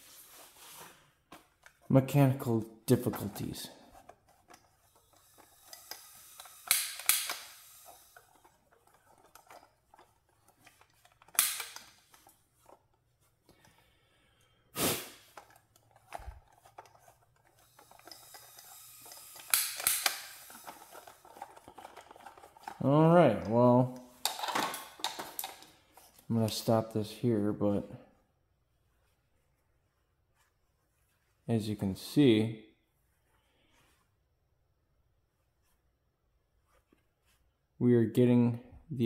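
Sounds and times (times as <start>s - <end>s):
torch trigger clicks: 5.0s - 8.4s, 11.3s - 11.9s, 17.6s - 21.4s
gas hiss bursts: 5.6s - 8.2s, 14.8s - 15.3s.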